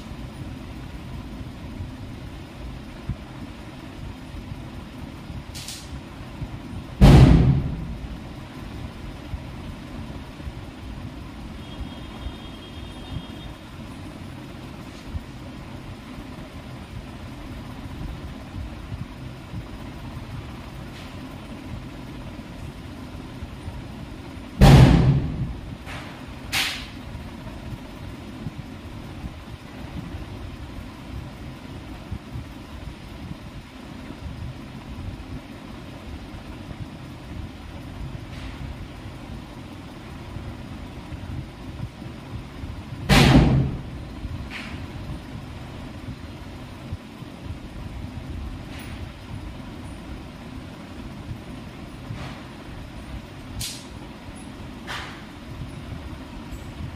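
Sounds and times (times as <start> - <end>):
steady low rumble: 0.0 - 56.9
loud thump: 7.0 - 8.0, 24.6 - 26.0, 43.1 - 43.8
sudden bangs: 7.0 - 8.1, 24.6 - 25.6.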